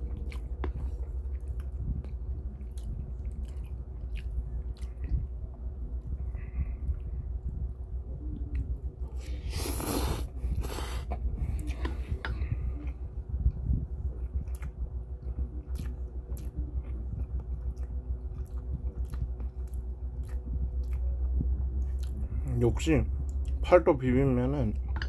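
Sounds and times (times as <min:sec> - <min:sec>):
wet chewing: 0:00.0 - 0:07.1, 0:08.4 - 0:22.3
man slurping noodles: 0:09.4 - 0:11.2.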